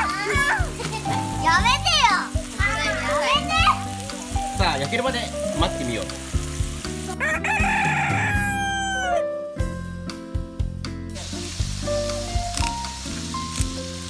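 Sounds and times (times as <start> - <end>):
patties sizzling on a griddle: 0.0 - 9.0, 11.1 - 14.0
background music with steady beat: 0.0 - 14.0
rooster crowing: 7.2 - 9.3.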